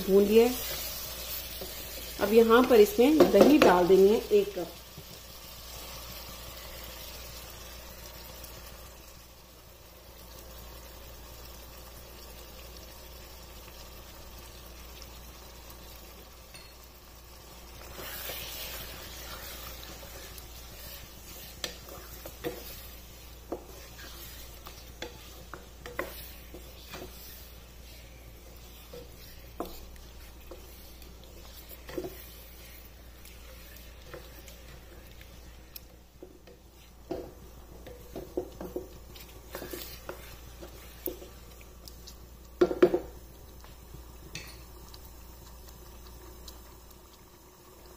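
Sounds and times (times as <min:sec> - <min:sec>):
meat sizzling in oil: 0:00.0 - 0:47.9
spatula scraping against pan: 0:17.8 - 0:35.5, 0:36.4 - 0:41.4.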